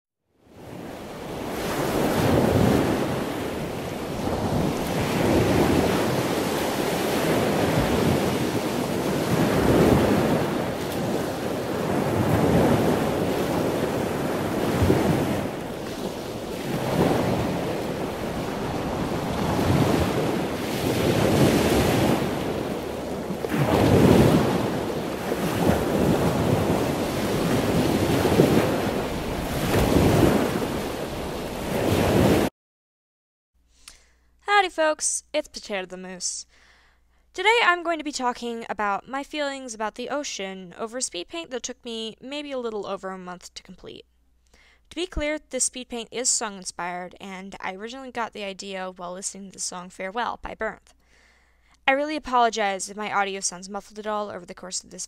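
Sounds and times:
ocean waves breaking: 0.4 - 32.5.

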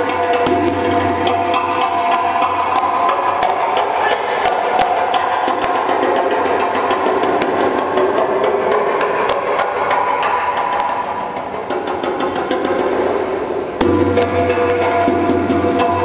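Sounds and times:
sharp wood-block-like clicks: 2.1 - 6.2.

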